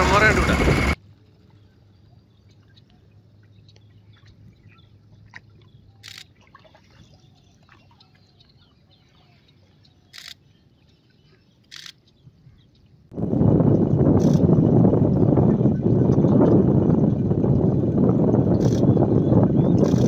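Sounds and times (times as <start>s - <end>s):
distant birds chirping: 0.0s - 13.1s, 18.5s - 20.0s.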